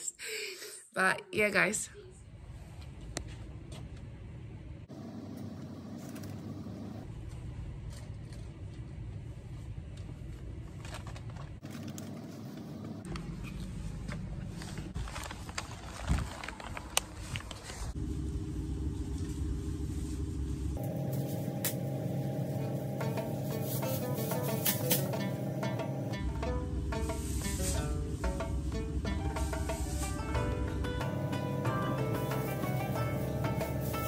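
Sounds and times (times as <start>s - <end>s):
low rumbling shop noise: 2.0s - 34.0s
clicks and rustling of goods: 9.9s - 18.0s
plastic bag rustling: 10.6s - 12.6s, 13.4s - 18.0s, 20.8s - 25.7s, 31.9s - 34.0s
steady hum: 18.0s - 34.0s.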